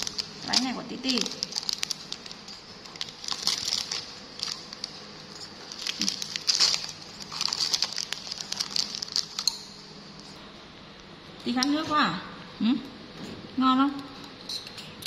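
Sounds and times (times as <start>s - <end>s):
packaging crackling and rustling: 0.0s - 9.7s.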